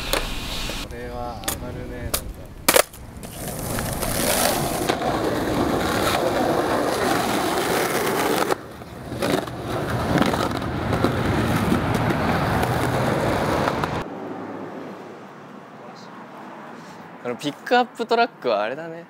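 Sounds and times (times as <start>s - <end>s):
skateboard wheels rolling on asphalt: 1.5s - 14.5s.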